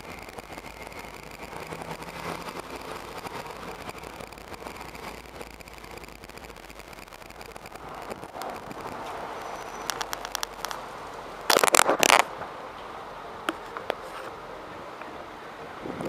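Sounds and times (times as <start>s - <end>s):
scraping crackle: 0.0s - 12.3s
faint steady background noise: 0.0s - 16.0s.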